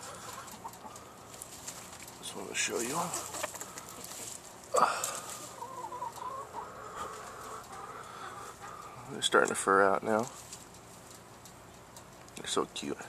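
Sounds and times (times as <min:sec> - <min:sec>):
chicken clucking: 0:00.0 - 0:04.4, 0:05.2 - 0:09.1.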